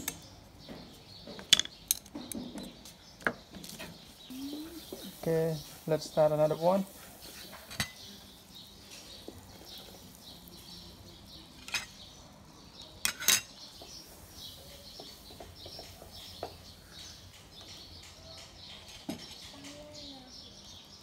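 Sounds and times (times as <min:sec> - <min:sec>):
utensils clinking on dishes: 0:07.3 - 0:08.2, 0:11.5 - 0:12.0, 0:13.0 - 0:13.6.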